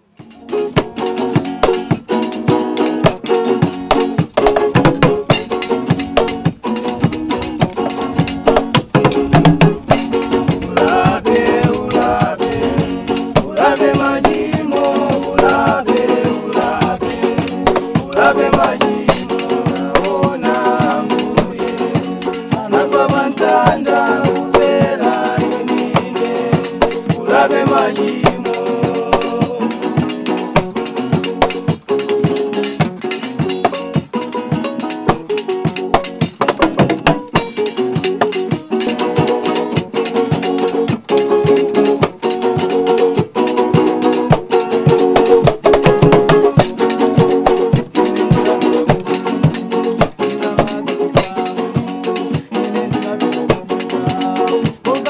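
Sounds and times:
homemade drum kit: 0.0 - 55.0
strummed acoustic guitars: 0.0 - 55.0
man singing: 10.3 - 30.6, 44.5 - 45.4, 46.3 - 47.2, 48.0 - 55.0.

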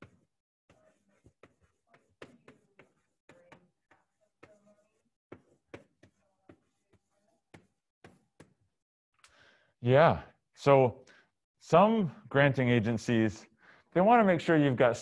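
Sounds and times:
chalk scratching on chalkboard: 0.0 - 8.6.

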